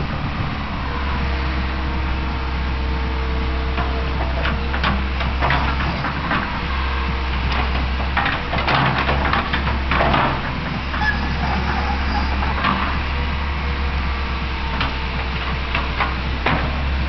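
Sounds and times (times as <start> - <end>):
diesel engine running: 0.0 - 17.0
excavator bucket clanks: 7.4 - 13.0.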